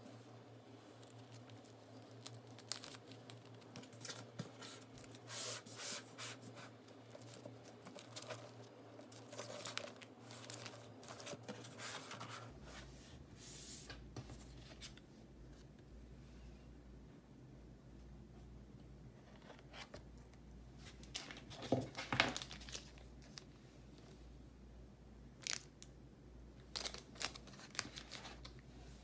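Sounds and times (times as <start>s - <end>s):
plastic sleeves rustling and crinkling: 0.6s - 12.9s, 20.8s - 24.2s, 25.4s - 25.9s, 26.6s - 29.0s.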